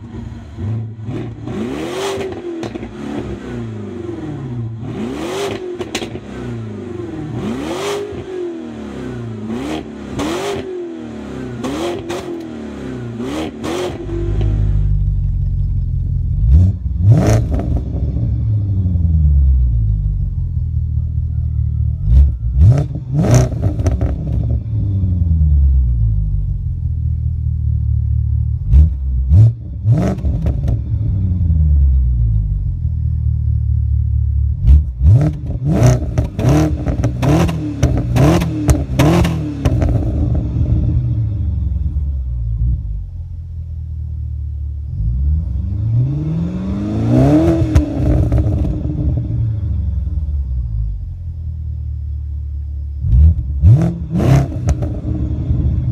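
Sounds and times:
car engine revving: 0.0s - 21.2s, 22.0s - 43.4s, 44.0s - 51.3s, 52.6s - 55.9s
car engine idling deep: 14.2s - 17.1s, 17.8s - 23.2s, 24.2s - 29.8s, 30.7s - 35.0s, 48.3s - 53.6s.

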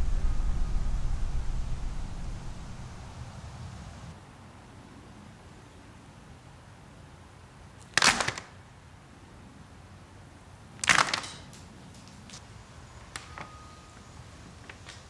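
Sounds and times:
short sharp noisy hits: 0.0s - 3.9s.

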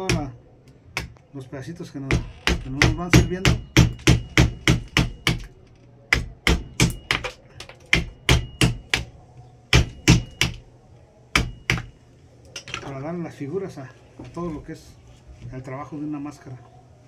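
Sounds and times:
mallet striking chisel into wood: 0.0s - 0.4s, 2.1s - 5.5s, 6.1s - 9.1s, 9.7s - 10.6s, 11.3s - 11.9s.

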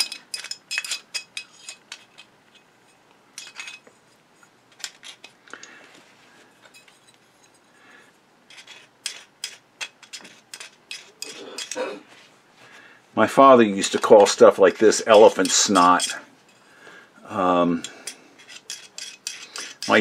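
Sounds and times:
metal tool scraping and clinking: 0.0s - 3.9s, 6.6s - 7.7s, 8.5s - 12.0s, 14.8s - 16.7s, 17.8s - 20.0s.

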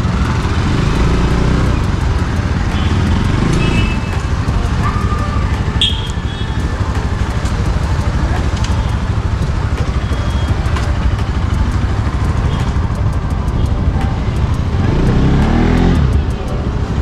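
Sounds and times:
motorcycle engine chugging: 0.0s - 17.0s.

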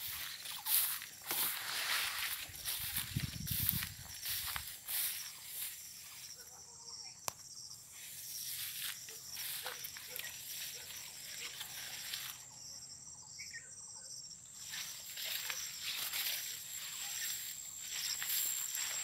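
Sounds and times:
vegetation rustling and brushing: 0.0s - 6.4s, 7.9s - 12.6s, 14.6s - 19.0s
footsteps: 0.0s - 6.5s, 7.9s - 12.4s, 14.7s - 19.0s.

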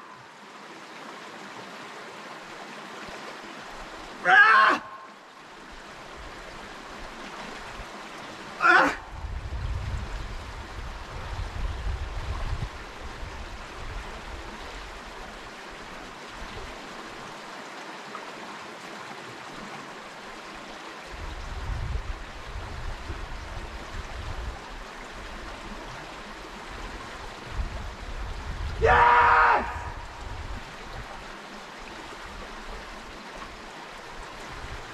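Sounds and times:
creek rushing over rocks: 0.0s - 34.9s.

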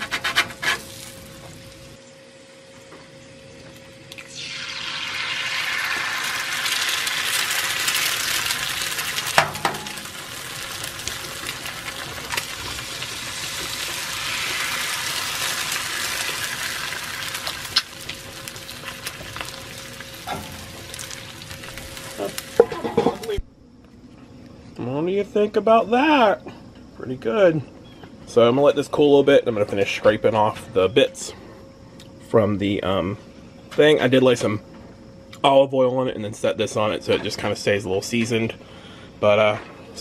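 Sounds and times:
eggs sizzling on griddle: 0.0s - 2.0s, 4.2s - 23.4s.

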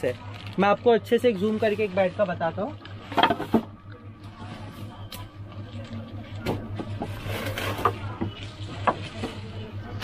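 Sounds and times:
plastic wrapping crinkling: 0.0s - 3.1s
steady low hum: 0.0s - 10.0s.

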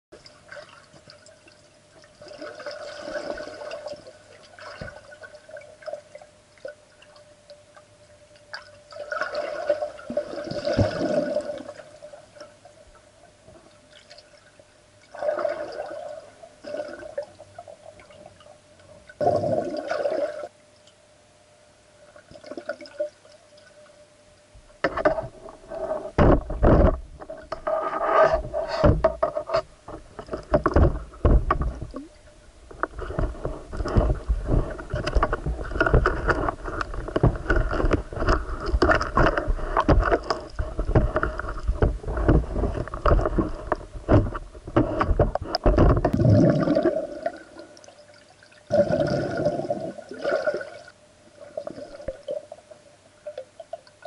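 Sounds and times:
water swirling and gurgling: 0.2s - 20.6s, 22.0s - 24.1s, 24.8s - 54.0s
steady hum: 0.2s - 54.0s
deep thumps against camera: 26.1s - 27.3s, 28.3s - 32.1s.

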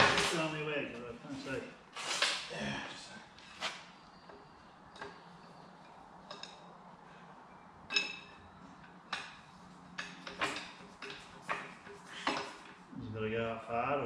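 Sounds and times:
metal tools clinking: 7.9s - 12.6s.

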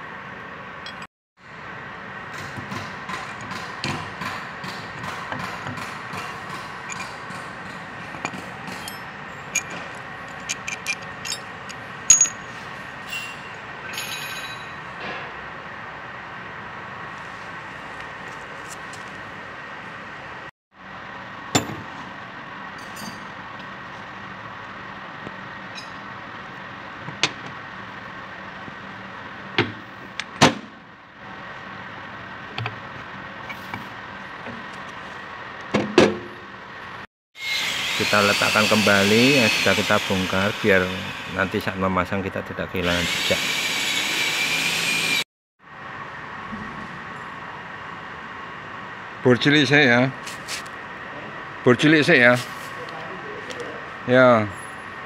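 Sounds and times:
steady mechanical hum: 0.0s - 55.0s
metal tools clinking on concrete: 6.8s - 15.0s, 22.8s - 23.4s, 25.7s - 26.1s.

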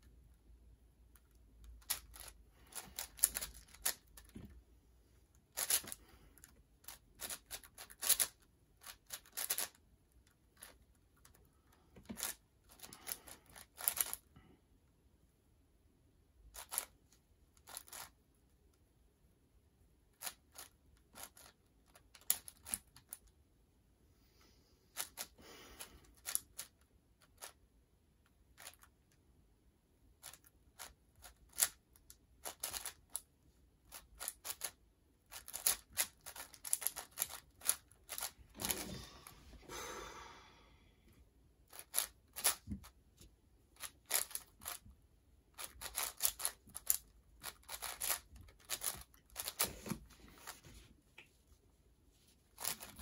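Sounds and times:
plastic puzzle clicks and clacks: 1.1s - 4.4s, 5.5s - 11.4s, 12.0s - 14.3s, 20.1s - 23.3s, 30.2s - 33.3s, 33.9s - 38.8s, 41.7s - 42.9s, 43.8s - 44.8s, 45.5s - 50.1s.

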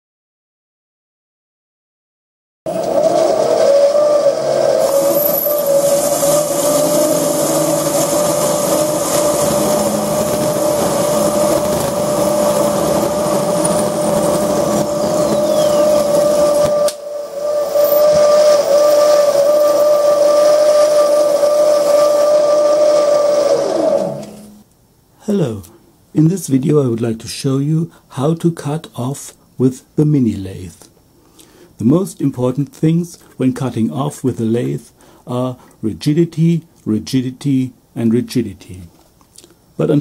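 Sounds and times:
lathe motor whine: 2.7s - 24.6s
tool cutting spinning metal: 2.7s - 24.6s.

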